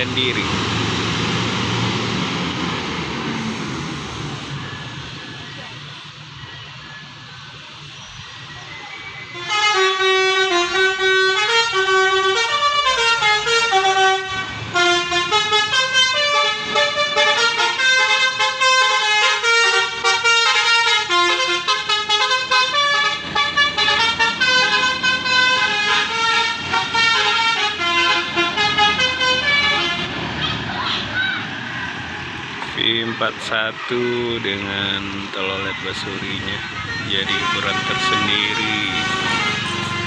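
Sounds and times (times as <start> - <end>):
multi-tone bus horn melody: 9.3 - 30.7, 35.9 - 40.0.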